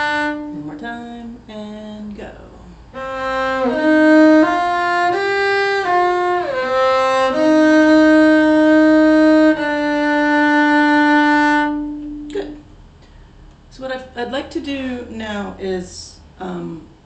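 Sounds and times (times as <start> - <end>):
cello bowed: 0.0 - 0.9, 2.9 - 12.6.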